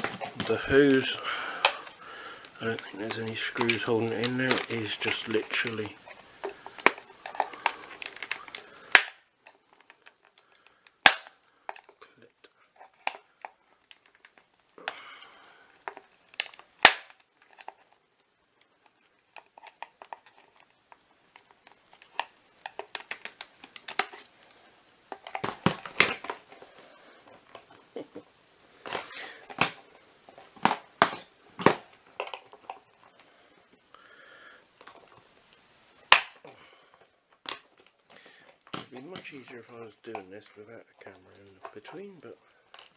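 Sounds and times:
rustling: 0:00.0 - 0:42.9
plastic clicks and snaps: 0:01.6 - 0:10.4, 0:18.6 - 0:26.6, 0:34.8 - 0:36.5.

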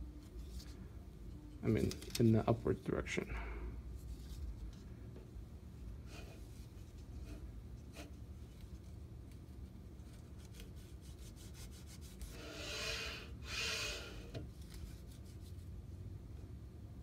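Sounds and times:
paper strip rubbing in narrow gap: 0:10.0 - 0:15.5.

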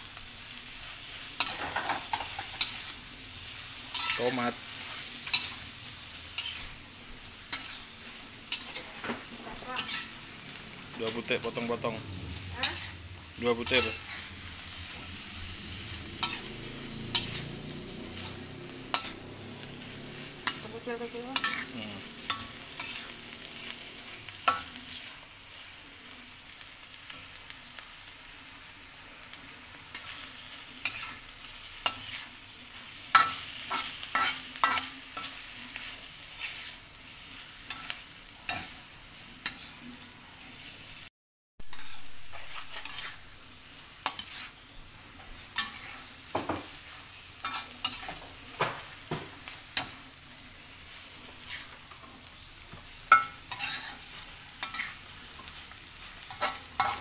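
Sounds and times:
food sizzling in a wok: 0:00.0 - 0:57.0
metal spatula scraping pan: 0:06.3 - 0:06.8, 0:07.4 - 0:10.3, 0:10.9 - 0:23.7, 0:33.1 - 0:36.8, 0:41.7 - 0:43.3, 0:44.0 - 0:49.0, 0:51.0 - 0:52.2, 0:53.1 - 0:55.5, 0:56.2 - 0:57.0.

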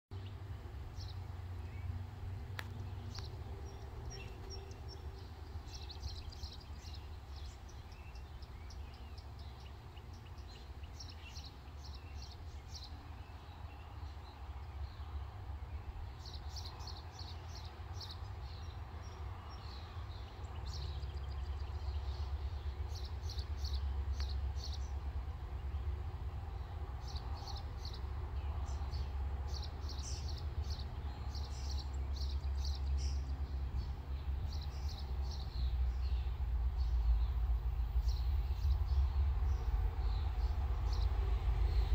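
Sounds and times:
songbirds chirping: 0:00.1 - 0:41.9
low rumble: 0:35.5 - 0:41.9.

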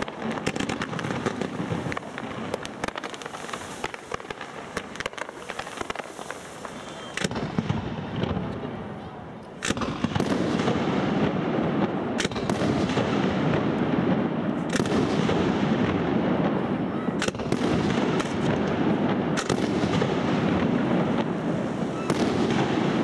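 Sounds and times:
firework shells bursting: 0:00.0 - 0:07.8.

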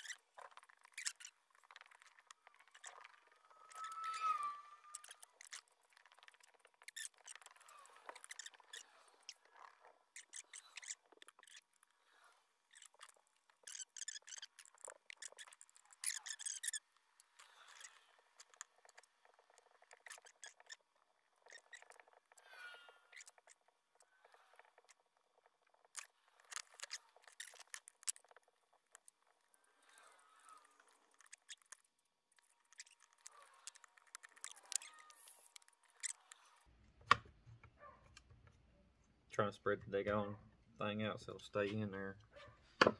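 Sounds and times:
small plastic parts clicking: 0:12.7 - 0:37.2.

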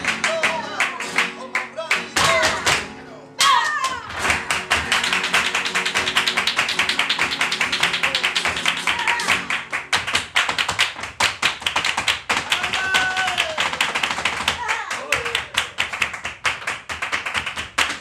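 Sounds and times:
guitar playing: 0:00.0 - 0:09.9
hand clapping: 0:00.0 - 0:18.0
footwork stamping on wooden stage: 0:02.2 - 0:02.9, 0:04.1 - 0:18.0
person shouting: 0:03.4 - 0:04.1, 0:12.4 - 0:13.8.

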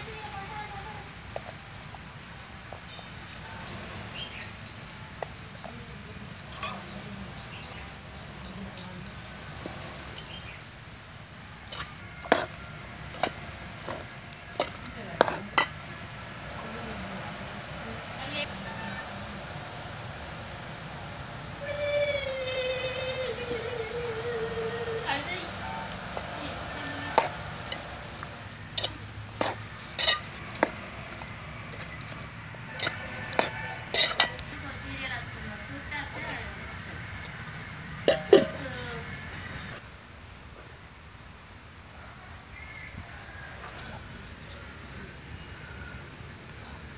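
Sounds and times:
metal ladle stirring food in pot: 0:11.6 - 0:15.9, 0:25.9 - 0:39.7
ladle clinking against pot: 0:28.8 - 0:32.1, 0:32.8 - 0:34.5, 0:38.0 - 0:38.8.

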